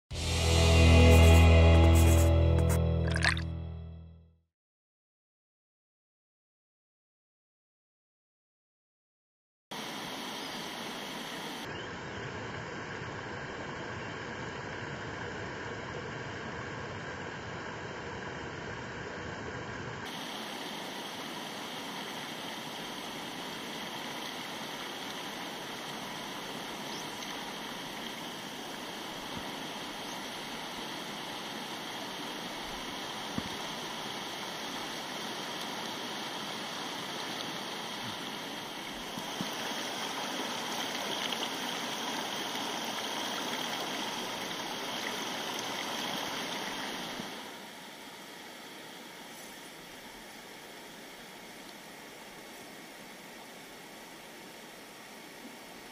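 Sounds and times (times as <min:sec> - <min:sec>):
river rushing over boulders: 0:09.8 - 0:11.7, 0:20.0 - 0:55.9.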